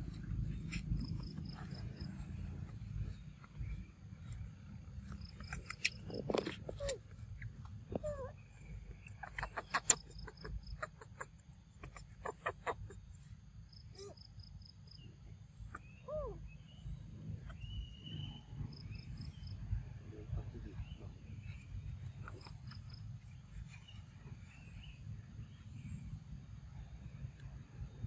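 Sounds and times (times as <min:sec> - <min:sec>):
insects chirping: 0:00.0 - 0:27.2
steady low rumble: 0:00.0 - 0:28.0
bird or animal calls: 0:05.0 - 0:16.8.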